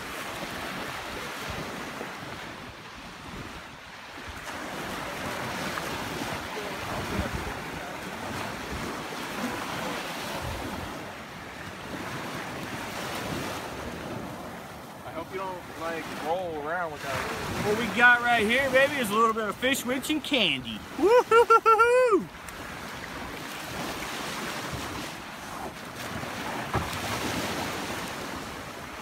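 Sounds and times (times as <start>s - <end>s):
wind buffeting microphone: 0.0s - 15.0s
small waves breaking on shore: 0.0s - 29.0s.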